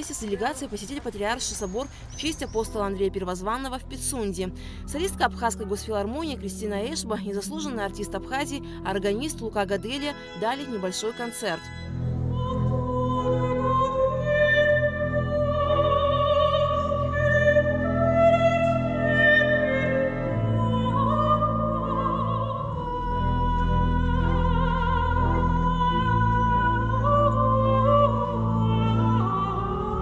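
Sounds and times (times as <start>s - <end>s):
pipe organ chords: 11.7s - 30.0s
soprano singing with vibrato: 12.3s - 30.0s.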